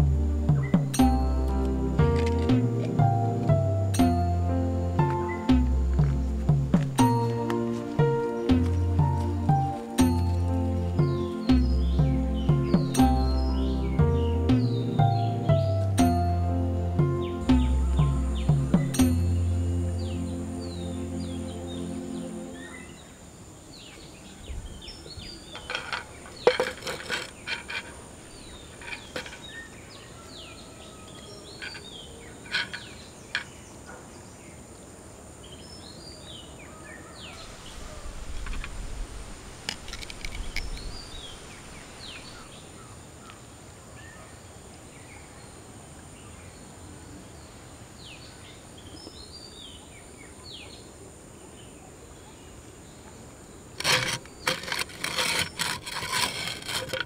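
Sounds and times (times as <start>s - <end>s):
small birds chirping: 0.0s - 16.2s, 17.0s - 34.7s, 35.4s - 57.0s
sharp knocks and clatters: 25.5s - 28.0s, 28.6s - 29.6s.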